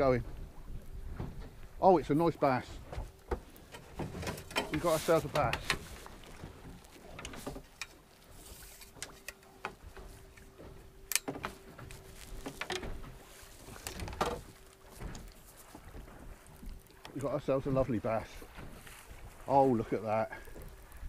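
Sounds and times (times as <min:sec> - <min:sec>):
water: 0:00.0 - 0:21.0
wind: 0:00.0 - 0:21.0
gear clattering on boat deck: 0:01.2 - 0:16.2.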